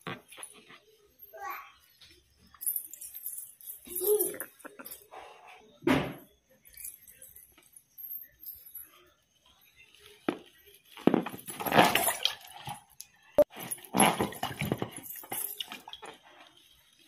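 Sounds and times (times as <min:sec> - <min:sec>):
anklet bells jingling: 0:00.2 - 0:05.2, 0:06.6 - 0:09.2, 0:13.4 - 0:17.0.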